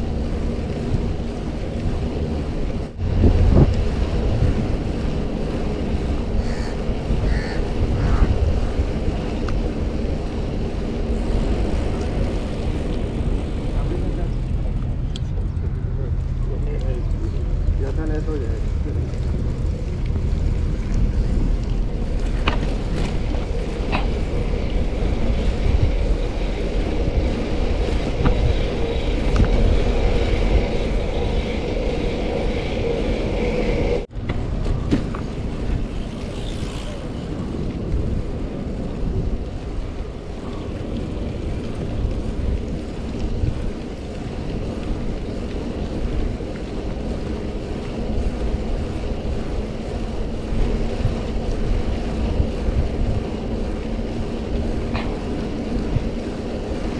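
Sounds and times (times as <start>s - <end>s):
wind buffeting microphone: 0.0s - 56.9s.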